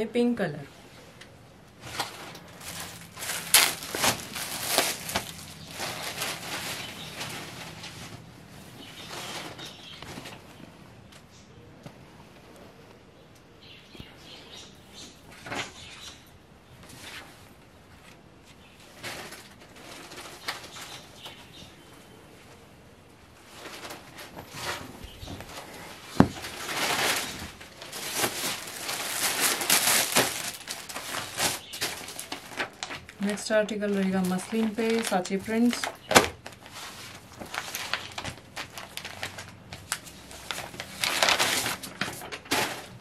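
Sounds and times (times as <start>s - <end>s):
cloth rustling and flapping: 1.8s - 10.7s, 34.2s - 43.0s.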